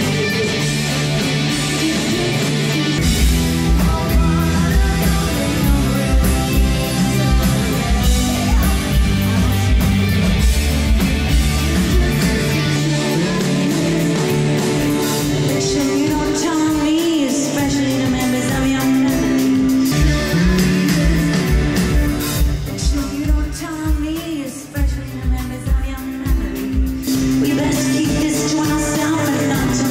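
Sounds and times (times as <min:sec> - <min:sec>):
electric bass: 0:00.0 - 0:24.1, 0:24.9 - 0:29.9
acoustic and electric guitars: 0:00.0 - 0:29.9
drums: 0:00.0 - 0:29.9
female lead vocal: 0:00.0 - 0:29.9
keyboard: 0:00.0 - 0:29.9.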